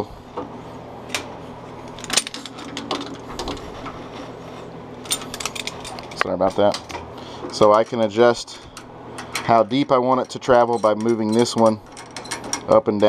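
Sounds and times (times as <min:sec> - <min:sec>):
steady low hum: 0:00.0 - 0:13.0
metallic clicks and clinks: 0:08.8 - 0:12.8.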